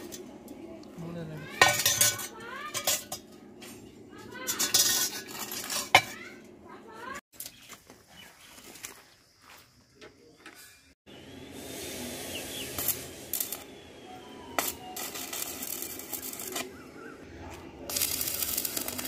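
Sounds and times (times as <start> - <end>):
birds chirping: 6.2 - 11.6, 12.2 - 15.0, 15.6 - 19.0
welding arc crackling: 11.4 - 16.9, 17.5 - 19.0.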